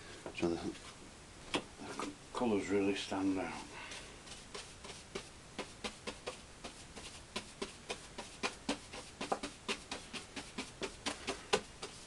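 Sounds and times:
paintbrush tapping on canvas: 0:05.2 - 0:12.0.

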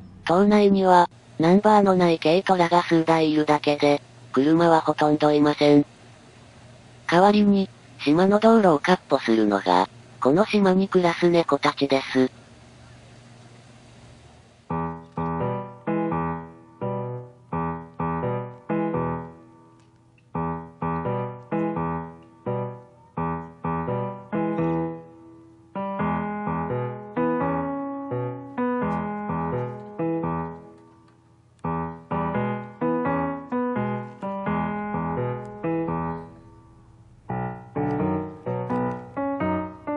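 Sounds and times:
piano music: 0:14.7 - 0:39.9.

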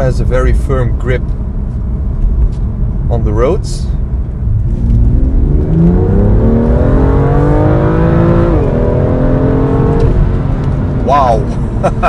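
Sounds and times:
car engine accelerating hard: 0:04.2 - 0:12.0.

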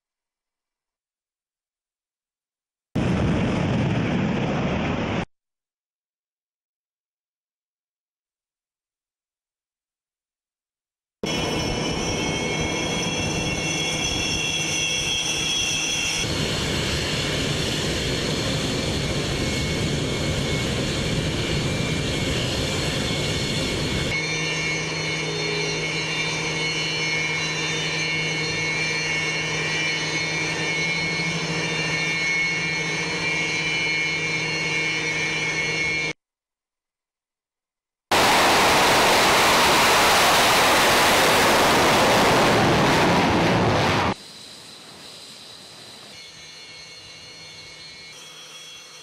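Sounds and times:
jet engines roaring and whining: 0:03.0 - 0:05.3, 0:11.2 - 0:36.2, 0:38.1 - 0:49.0.

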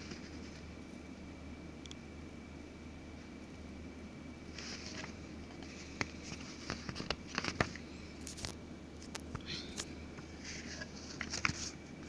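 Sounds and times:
paper booklet rustling: 0:04.5 - 0:08.6, 0:10.4 - 0:12.0.

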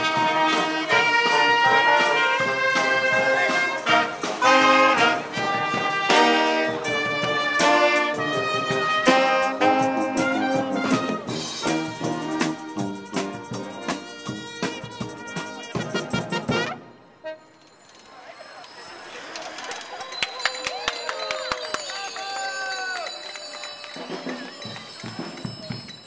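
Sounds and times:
brass band playing: 0:00.0 - 0:17.7.

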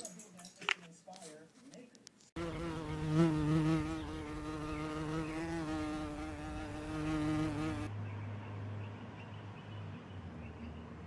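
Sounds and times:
flying insect buzzing: 0:02.4 - 0:07.9.

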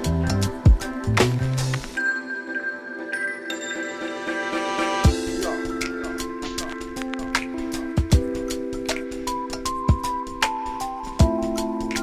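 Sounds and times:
music with sustained notes: 0:00.0 - 0:12.0.

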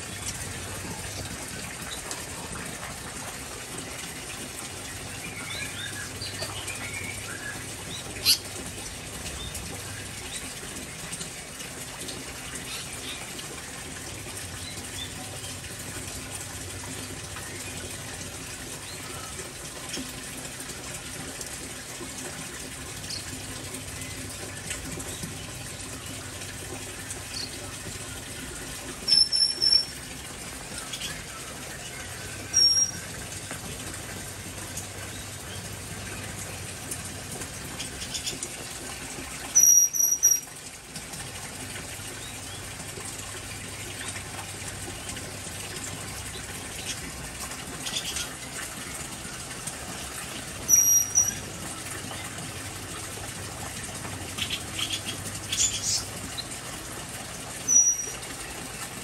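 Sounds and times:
loud high-pitched bird chirp: 0:29.1 - 0:30.0, 0:32.5 - 0:33.0, 0:39.6 - 0:40.4, 0:50.7 - 0:51.4, 0:57.7 - 0:58.2.

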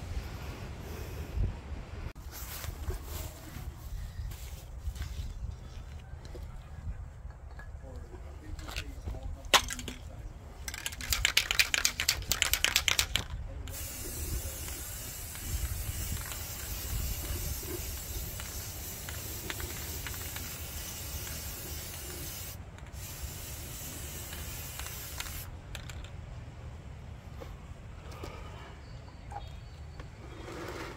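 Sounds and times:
spray can rattling: 0:10.7 - 0:26.1
spray can hissing: 0:11.0 - 0:25.5.

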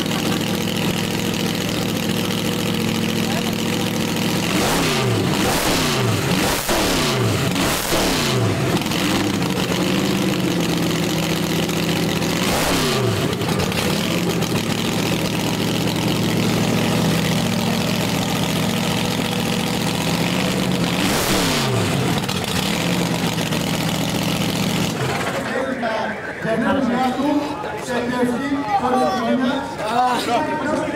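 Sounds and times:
dragster engine idling unevenly: 0:00.0 - 0:04.6, 0:08.5 - 0:26.4
engine throttle blips: 0:00.0 - 0:27.8.

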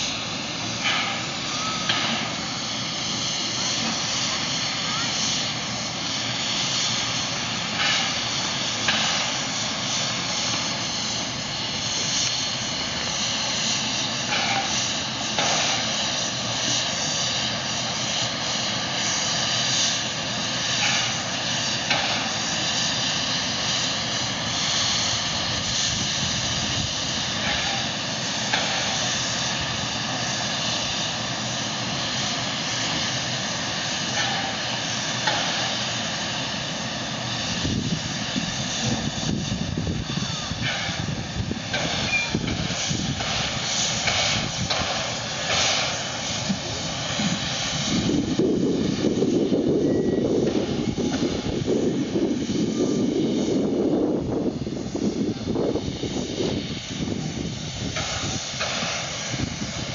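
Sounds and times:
steam hissing from locomotive: 0:00.0 - 0:59.9.

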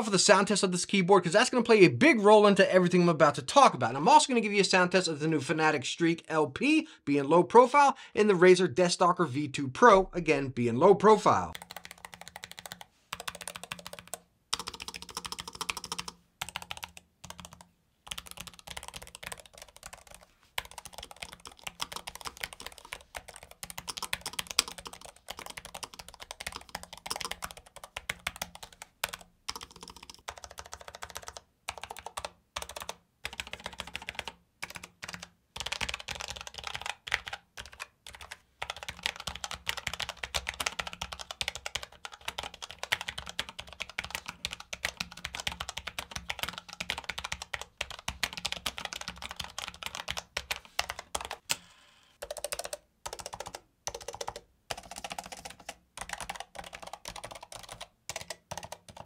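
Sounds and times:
fast typing on mechanical keyboard: 0:11.5 - 0:51.4, 0:52.2 - 0:59.0.

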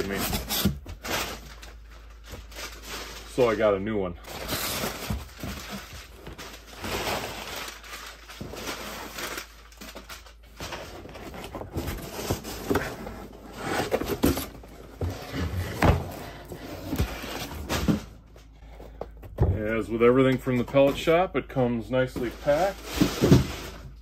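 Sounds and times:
cardboard scraping and rustling: 0:04.3 - 0:18.3, 0:22.1 - 0:24.0.

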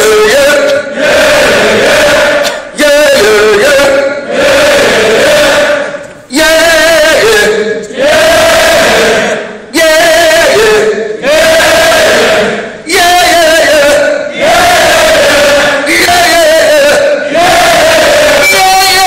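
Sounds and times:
crowd singing: 0:00.0 - 0:19.0
man singing with vibrato: 0:00.0 - 0:19.0.

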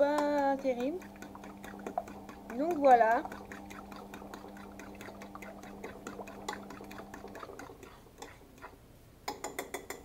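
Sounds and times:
fork beating eggs in bowl: 0:00.0 - 0:10.0
low steady hum: 0:00.0 - 0:10.0.

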